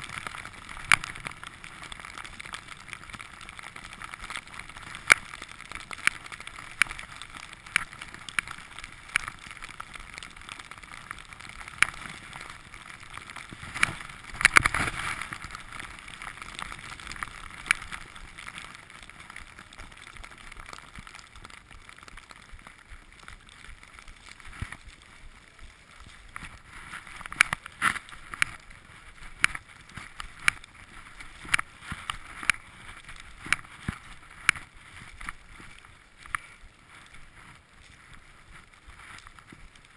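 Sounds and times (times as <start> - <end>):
skis hissing through powder snow: 13.5 - 16.5.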